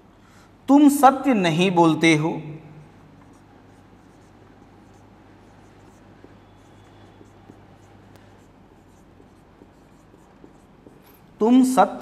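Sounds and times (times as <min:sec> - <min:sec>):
low steady hum: 0:00.0 - 0:12.0
marker pen writing on whiteboard: 0:02.8 - 0:12.0.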